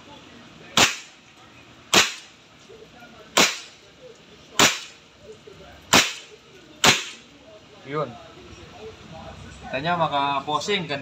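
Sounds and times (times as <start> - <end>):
air rifle shots: 0.8 - 1.2, 1.9 - 2.3, 3.4 - 3.8, 4.6 - 5.0, 5.9 - 7.2.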